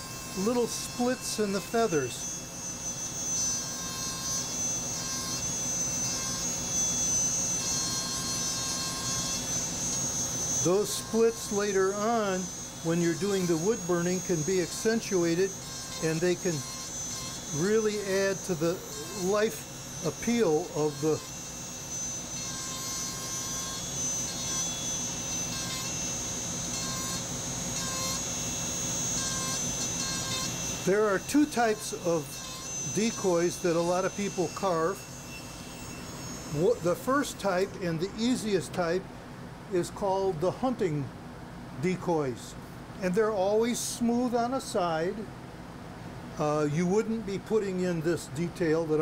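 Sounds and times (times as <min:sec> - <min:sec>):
stone bit grinding wood: 0:00.0 - 0:38.8
rotary carving tool whining: 0:00.0 - 0:39.0.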